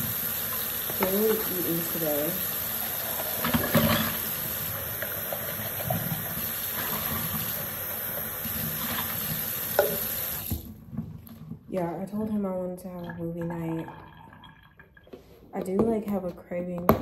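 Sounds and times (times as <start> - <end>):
tap water running into sink: 0.0 - 10.8.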